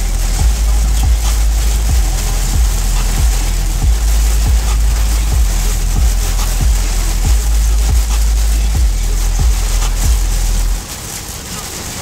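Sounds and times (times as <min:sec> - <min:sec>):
bass-heavy music with kick drum: 0:00.0 - 0:10.8
heavy rain on a car: 0:00.0 - 0:12.0.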